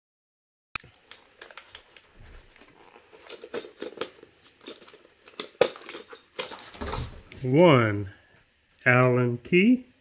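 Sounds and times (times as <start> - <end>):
metal hardware clinking: 3.3 - 6.8.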